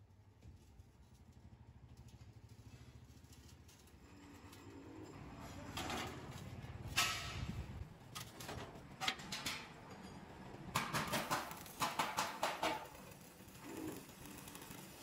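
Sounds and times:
welding arc crackling: 10.8 - 15.0.

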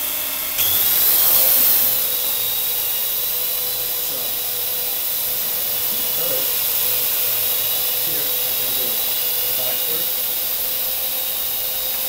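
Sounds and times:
drone propellers whirring: 0.0 - 12.0.

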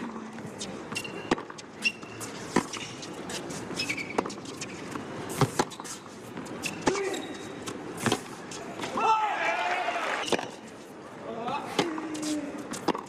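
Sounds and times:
shoes squeaking on court: 0.0 - 9.0
tennis ball bouncing: 0.4 - 7.0, 7.6 - 8.9, 10.2 - 10.6, 11.7 - 13.0
racket hitting tennis ball: 0.9 - 9.0, 10.2 - 10.6, 11.7 - 13.0.

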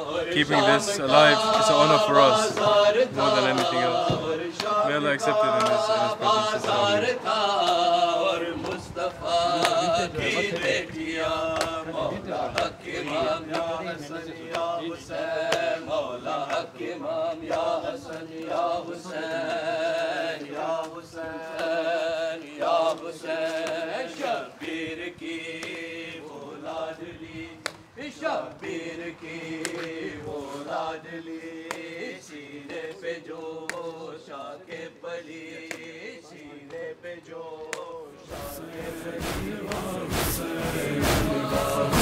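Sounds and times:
man chanting a lament: 0.0 - 8.6, 9.2 - 17.2, 33.9 - 42.0
steady held drone: 38.3 - 42.0.

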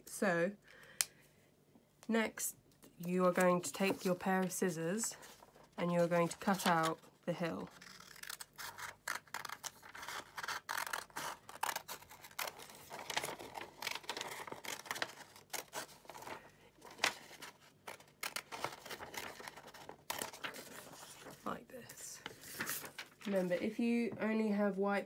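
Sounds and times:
scissors snipping paper: 7.7 - 16.3.

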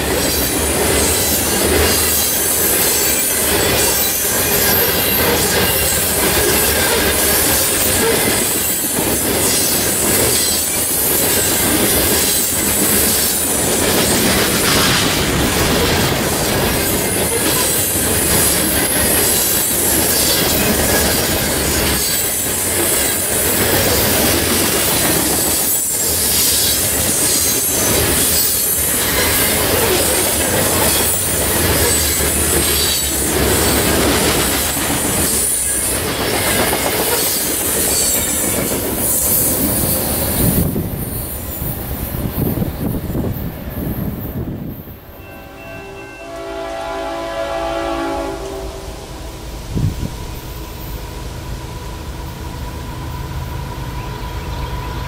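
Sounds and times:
high wheel squeal: 0.0 - 13.5
wheels clacking over rail joints: 0.0 - 44.5
train wheels rumbling on rail: 0.0 - 55.0.

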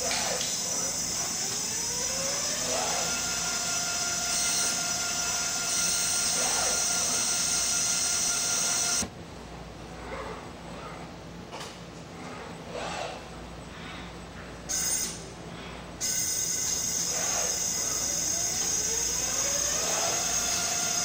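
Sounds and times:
machine motor whine: 0.0 - 9.1, 16.0 - 21.0.

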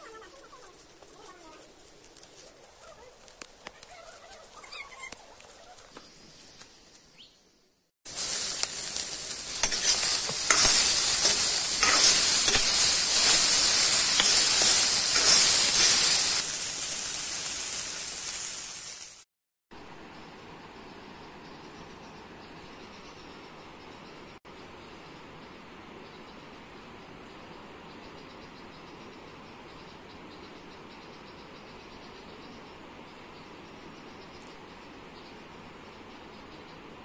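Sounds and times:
rustling of leaves being handled: 0.0 - 7.2, 8.1 - 19.2
corn sizzling in hot oil: 8.1 - 19.3.

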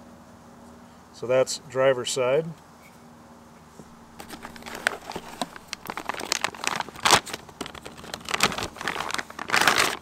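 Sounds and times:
plastic wrap crinkling: 3.8 - 10.0.

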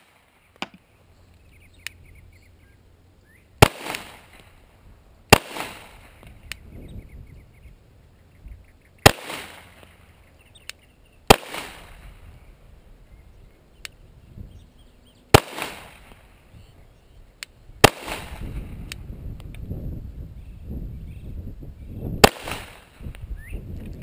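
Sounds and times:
pistol shots with echo: 3.6 - 4.5, 5.3 - 6.2, 9.0 - 10.0, 11.3 - 12.2, 15.3 - 16.3, 17.8 - 18.7, 22.2 - 23.0.

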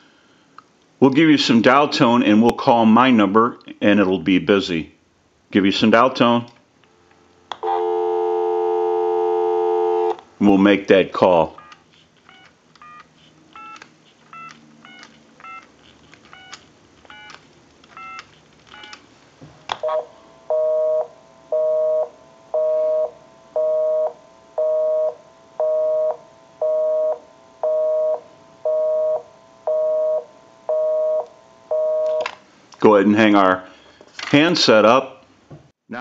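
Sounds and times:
touch-tone dialing beeps: 11.6 - 13.0
busy signal beeping: 19.9 - 32.2.

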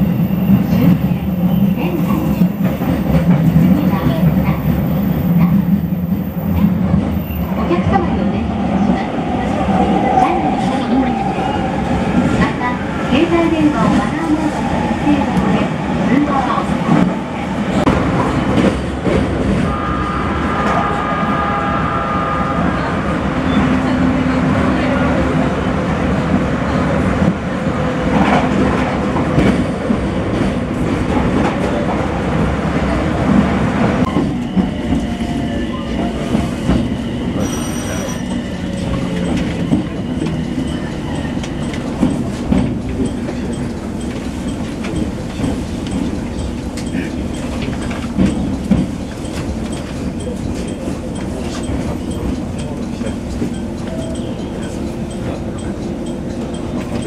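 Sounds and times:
train wheels clattering on rails: 0.0 - 8.2, 28.0 - 32.1, 33.2 - 57.0.

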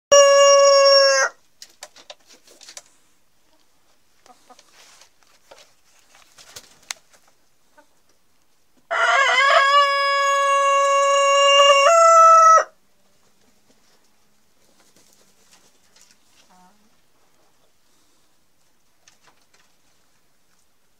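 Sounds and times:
rooster crowing: 0.1 - 1.4, 8.9 - 12.8
faint clicks and scuffles: 1.6 - 7.4.

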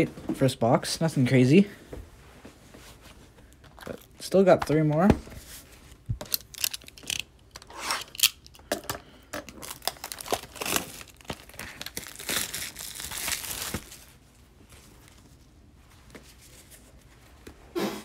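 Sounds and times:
plastic wrap tearing and crinkling: 9.5 - 14.2.

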